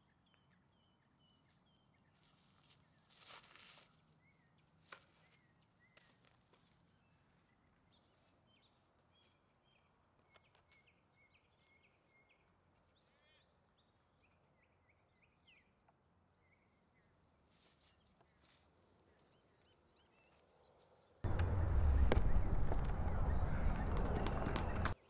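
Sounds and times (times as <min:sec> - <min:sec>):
bird trill: 0:21.3 - 0:25.0.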